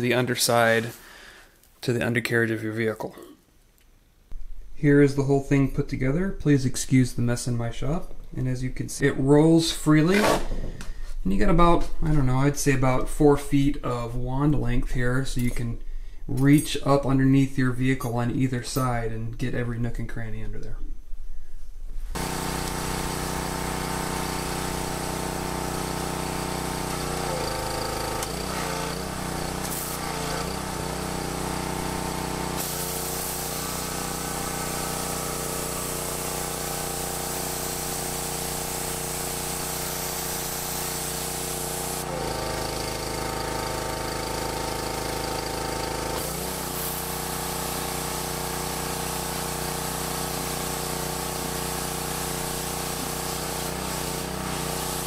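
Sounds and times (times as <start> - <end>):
pressure washer running: 22.1 - 55.0
water jets hissing on concrete: 22.2 - 55.0.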